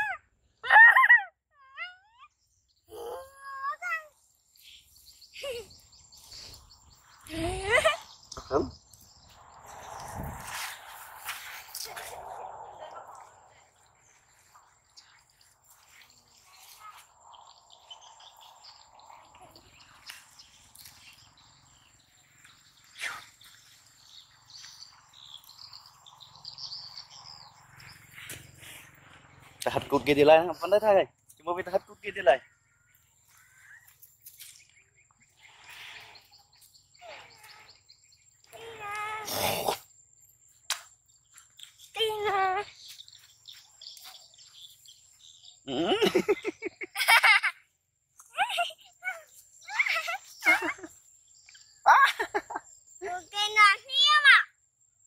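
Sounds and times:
child laughing: 0.0 - 2.2, 5.4 - 5.8, 7.3 - 8.1, 45.7 - 47.7, 48.3 - 51.0, 51.8 - 53.2
faint high chirping birds: 0.0 - 55.0.

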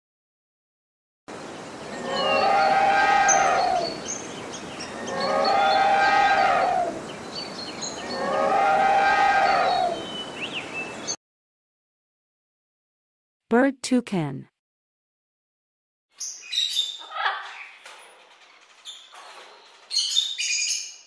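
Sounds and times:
elephant trumpeting: 1.9 - 4.0, 4.9 - 7.1, 8.0 - 10.1.

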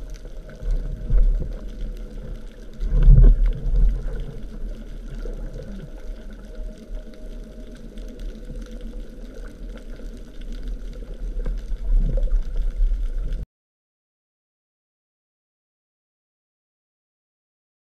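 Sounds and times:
underwater rumble of moving water: 0.0 - 13.4.

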